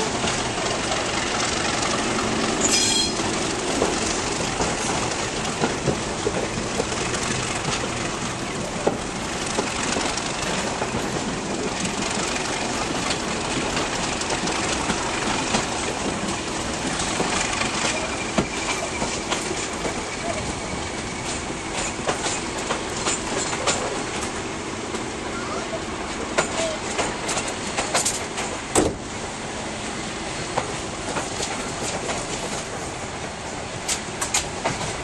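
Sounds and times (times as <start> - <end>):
wind rush from train window: 0.0 - 35.0
high wheel squeal: 2.6 - 3.4, 17.7 - 21.7.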